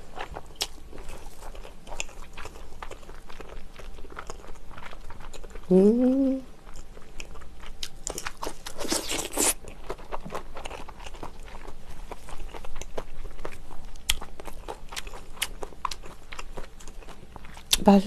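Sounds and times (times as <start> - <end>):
crunchy chewing: 0.0 - 5.7, 6.6 - 17.8
crunching bites: 7.8 - 10.7.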